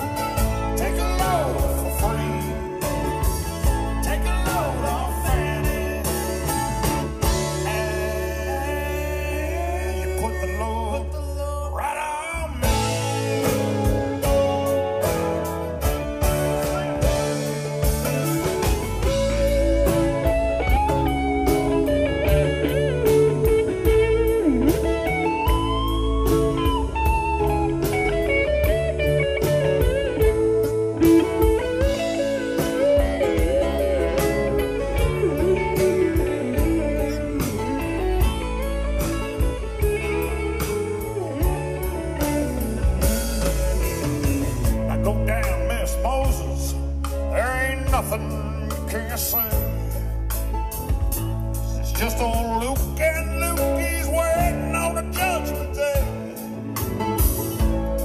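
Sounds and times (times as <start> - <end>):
bass guitar: 0.0 - 58.0
drums: 0.0 - 58.0
electric guitar solo: 12.6 - 47.3, 53.6 - 58.0.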